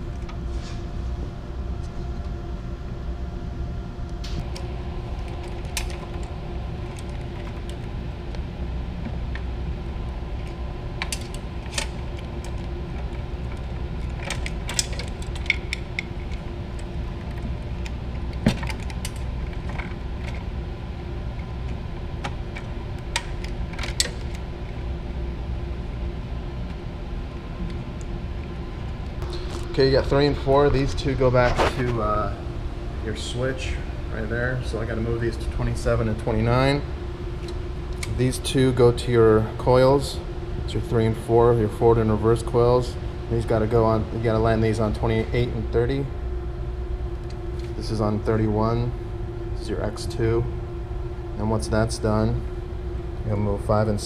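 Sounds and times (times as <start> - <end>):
low machinery hum: 0.0 - 54.0
wires clicking and rattling: 4.2 - 7.9, 10.4 - 20.5.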